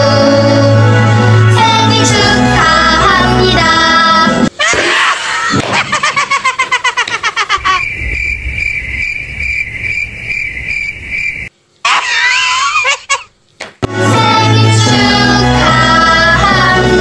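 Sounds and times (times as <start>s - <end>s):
person laughing: 4.5s - 7.9s, 11.9s - 13.4s.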